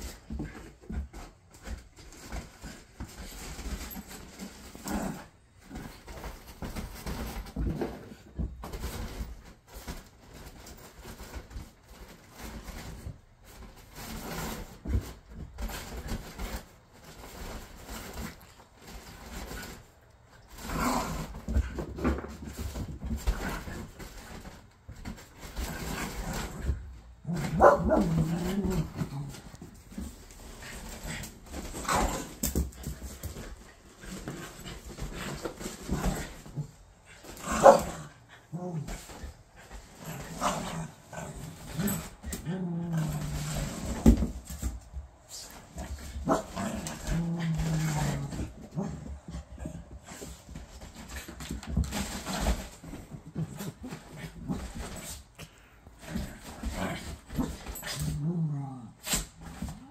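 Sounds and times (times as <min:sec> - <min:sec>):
small dogs moving on a couch: 0:00.0 - 0:59.9
small dogs barking playfully: 0:27.3 - 0:28.8, 0:37.4 - 0:38.7, 0:46.2 - 0:46.8.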